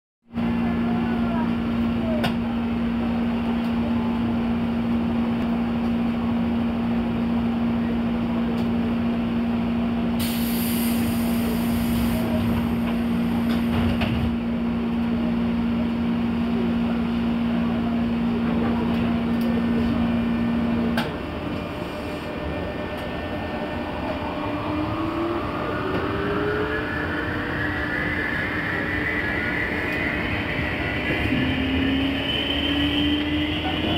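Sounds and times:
train equipment humming: 0.4 - 33.9
air hiss: 10.2 - 12.4
train motor whine: 18.8 - 33.9.

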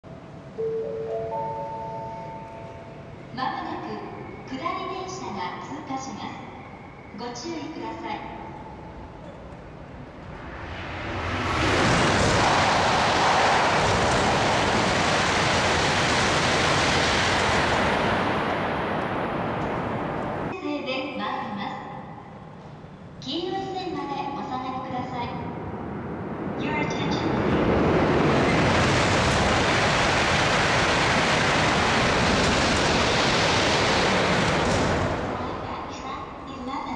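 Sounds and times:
high-speed train passing: 0.1 - 20.6, 21.5 - 36.9.

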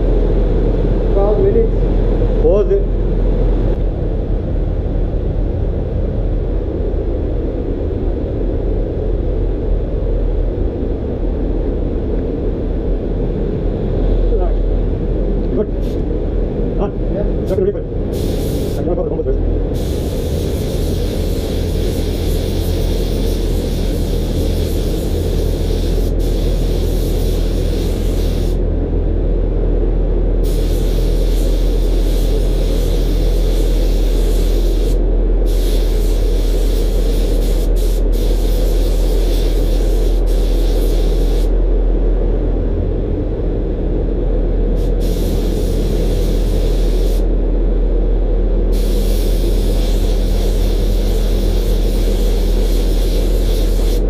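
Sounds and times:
steady low hum: 0.0 - 54.0
spray gun hissing: 18.1 - 18.8, 19.8 - 28.6, 30.4 - 41.5, 44.8 - 47.3, 48.7 - 54.0.

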